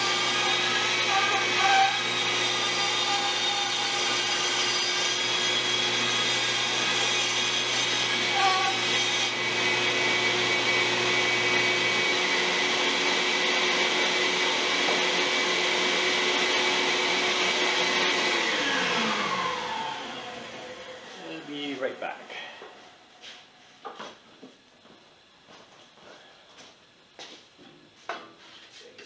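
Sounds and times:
bandsaw cutting wood: 0.0 - 22.2
dust collector humming: 0.0 - 23.6.

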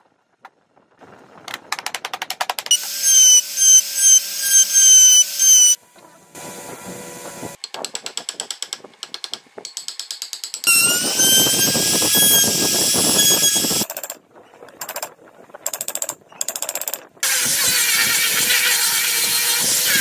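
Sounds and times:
power tool whining under load: 2.7 - 5.8.

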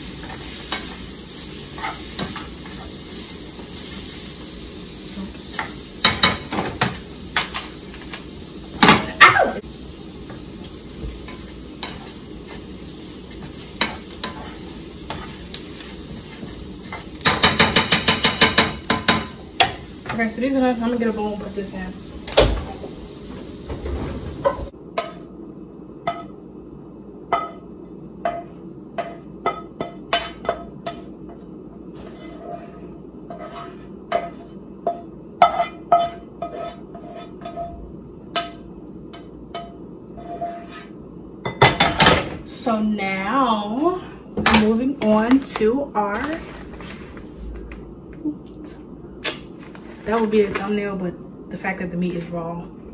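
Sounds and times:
vegetables sizzling in a frying pan: 0.0 - 25.4.

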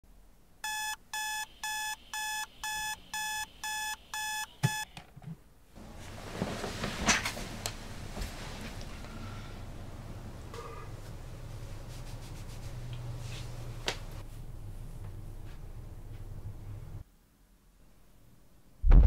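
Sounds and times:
alarm clock beeping: 0.6 - 4.9
rustling: 5.8 - 9.0.

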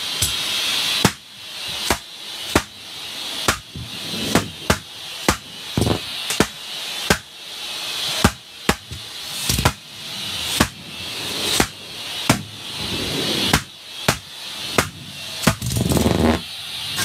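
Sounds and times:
shop vac rushing hiss: 0.0 - 17.0
balloons popping: 3.5 - 7.3.

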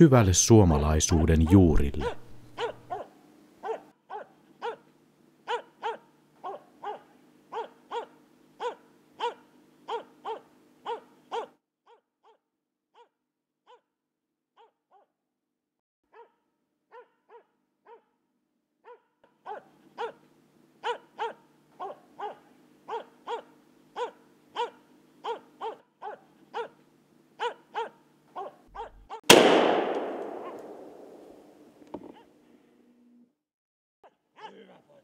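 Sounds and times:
dog barking sharply: 2.0 - 4.8, 5.5 - 11.5, 18.9 - 20.2, 20.8 - 26.7, 27.4 - 29.1, 29.8 - 30.8
gunshot: 29.3 - 31.6.

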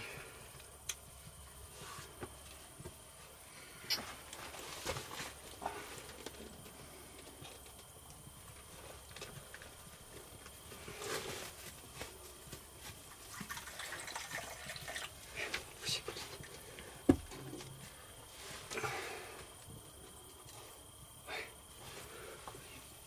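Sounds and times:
tea pouring into cup: 13.1 - 15.3.

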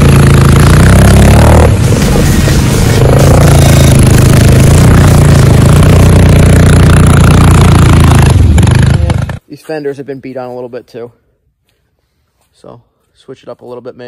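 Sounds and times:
atv engine running: 0.0 - 9.4.

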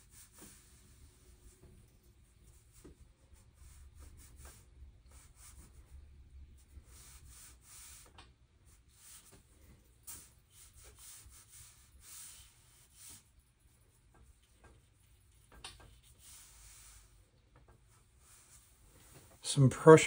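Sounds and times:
brush stroking on paper: 0.0 - 20.0.

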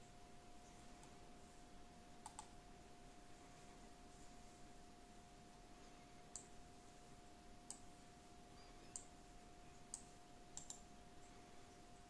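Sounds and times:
faint steady hum: 0.0 - 12.0
computer mouse buttons clicking: 2.2 - 2.5, 6.3 - 6.5, 7.6 - 7.8, 8.9 - 9.1, 9.9 - 10.8.

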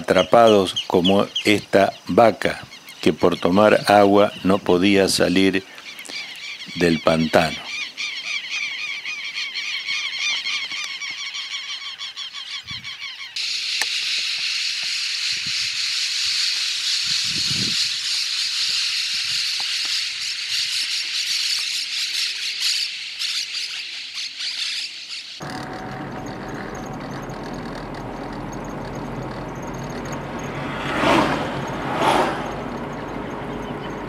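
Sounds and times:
chorus of rapid high animal calls: 5.8 - 30.6.

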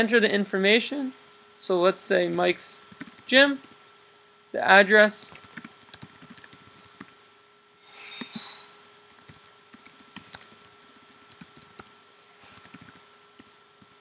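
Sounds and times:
faint steady hum: 0.0 - 14.0
computer keyboard typing: 2.3 - 3.8, 5.3 - 7.1, 9.1 - 14.0.

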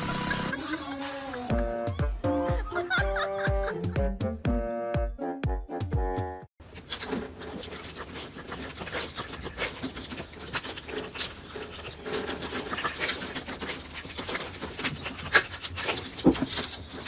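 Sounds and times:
dogs licking and smacking: 6.8 - 17.0.

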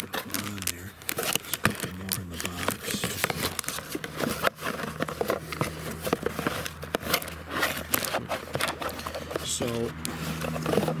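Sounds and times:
cardboard and plastic packaging crinkling: 0.0 - 11.0.

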